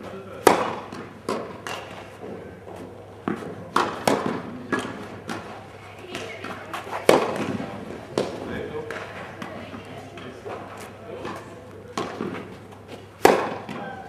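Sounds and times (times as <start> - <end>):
tennis balls struck and bouncing: 0.0 - 14.0.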